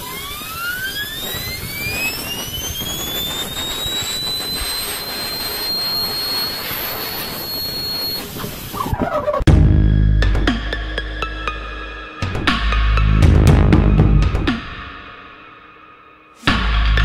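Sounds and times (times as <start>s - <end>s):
air jet hissing: 0.0s - 9.2s
spinning ball bearing whine: 0.0s - 9.5s.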